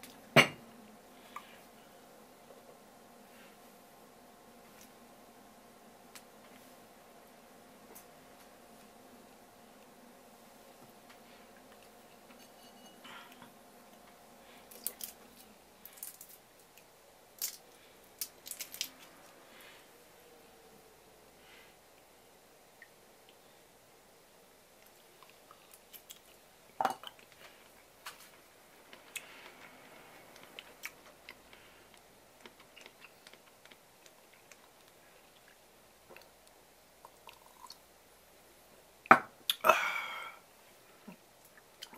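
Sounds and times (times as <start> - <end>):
shrimp shells cracking: 18.2 - 19.0.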